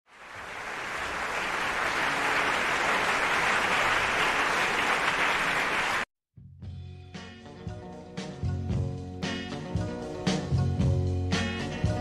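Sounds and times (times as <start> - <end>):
audience applauding: 0.1 - 6.1.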